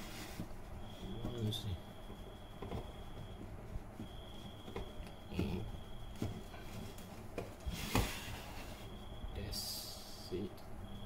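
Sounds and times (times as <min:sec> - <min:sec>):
hard plastic rubbing and knocking: 0:02.6 - 0:08.2.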